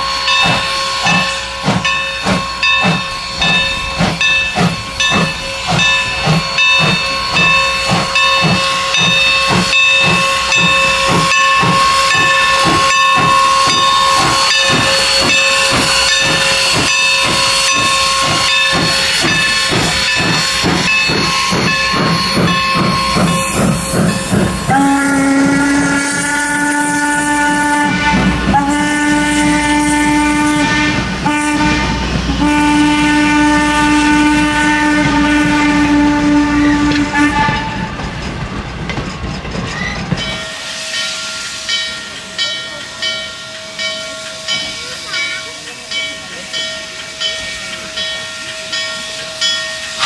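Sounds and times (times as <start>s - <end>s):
low-pitched steam whistle: 0.0s - 38.0s
steam locomotive exhaust chuffs: 0.0s - 50.0s
steam whistle: 5.2s - 38.0s.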